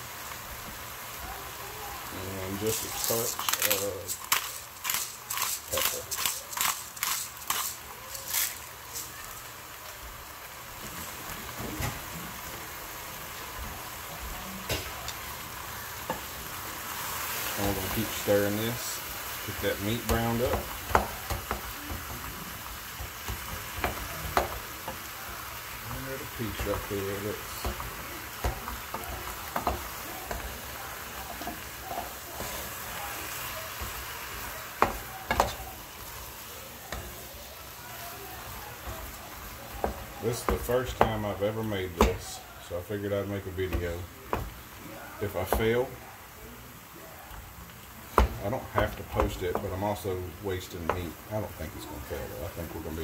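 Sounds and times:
meat sizzling in oil: 0:00.0 - 0:53.0
wooden spoon scraping: 0:02.4 - 0:09.5.

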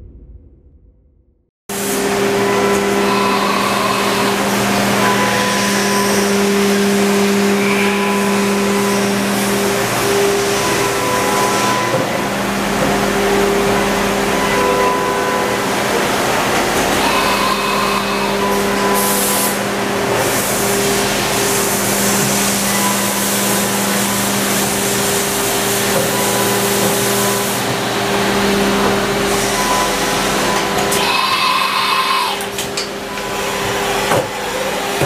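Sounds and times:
machinery motor hum: 0:01.7 - 0:35.0
machinery hiss: 0:17.0 - 0:28.0.

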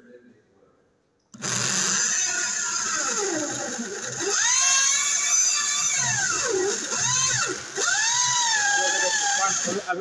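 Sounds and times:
power drill boring into wood: 0:01.4 - 0:10.0.

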